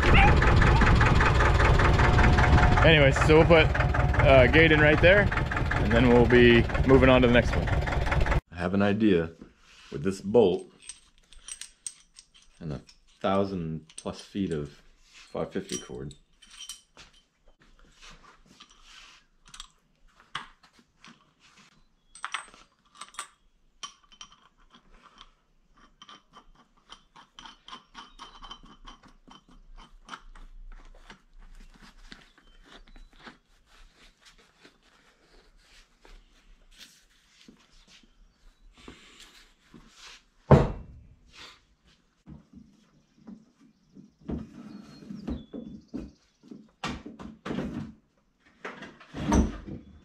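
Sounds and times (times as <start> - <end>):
steel bolt clicking and rattling: 10.7 - 13.2
loud thump: 40.5 - 41.0.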